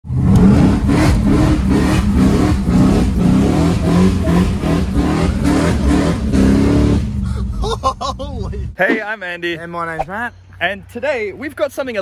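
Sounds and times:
car engine revving hard: 0:00.1 - 0:07.2.

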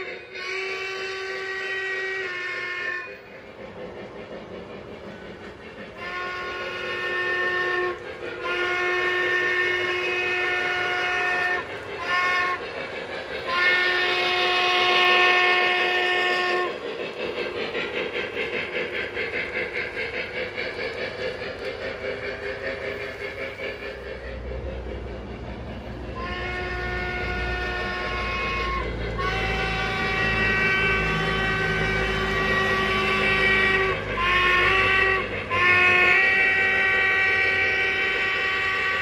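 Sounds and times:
model steam whistle blasts: 0:00.0 - 0:03.2, 0:06.0 - 0:12.7, 0:13.4 - 0:16.8, 0:26.1 - 0:39.0
rhythmic locomotive chuffing: 0:00.0 - 0:39.0.

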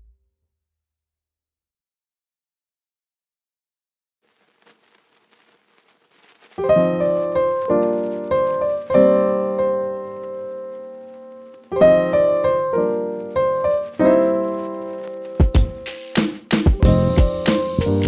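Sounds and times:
slow piano chords: 0:06.6 - 0:18.0
drum beat: 0:15.4 - 0:18.0.

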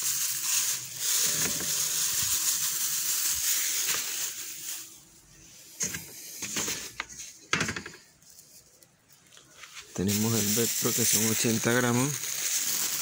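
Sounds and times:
powder pouring into a bowl: 0:00.0 - 0:05.2, 0:10.0 - 0:13.0.

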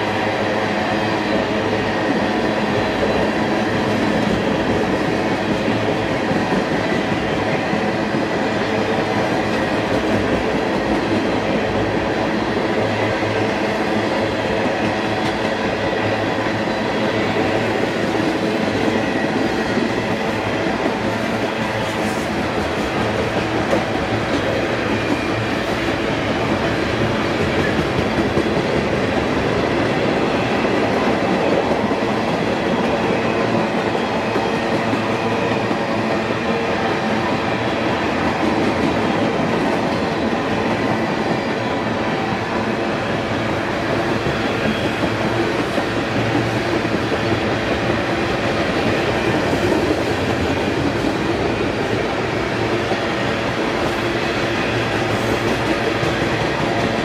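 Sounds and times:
train wheels on rails: 0:00.0 - 0:57.0.

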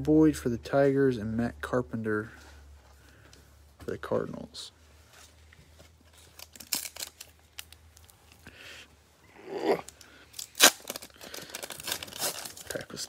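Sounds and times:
foil wrapper crinkling: 0:06.0 - 0:08.2, 0:09.9 - 0:13.0
foil wrapper ripping: 0:06.3 - 0:08.1, 0:09.8 - 0:13.0.

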